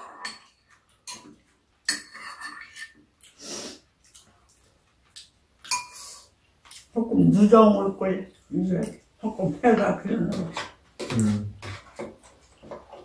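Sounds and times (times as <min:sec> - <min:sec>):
spoons and chopsticks clinking bowls: 0:00.0 - 0:01.3, 0:05.6 - 0:06.0.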